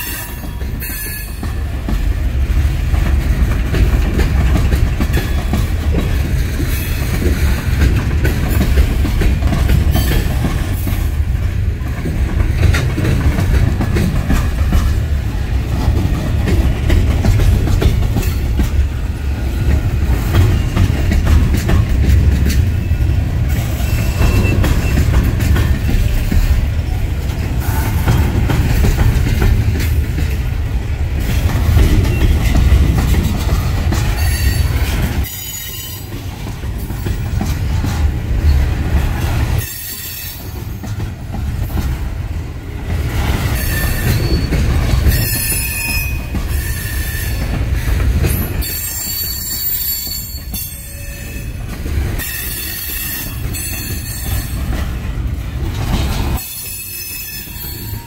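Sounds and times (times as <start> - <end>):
train wheels rumbling on rail: 0.0 - 58.0
high wheel squeal: 43.6 - 47.4, 48.4 - 51.5, 56.4 - 58.0.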